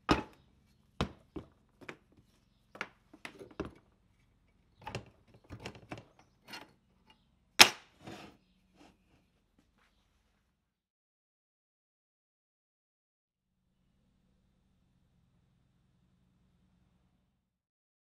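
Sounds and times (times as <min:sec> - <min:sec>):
bench grinder knocking on metal plate: 0:00.1 - 0:00.4.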